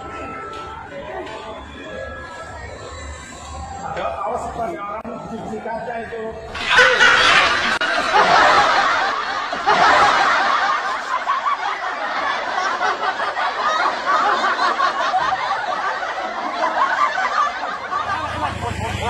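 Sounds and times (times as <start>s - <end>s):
laughter: 6.5s - 19.0s.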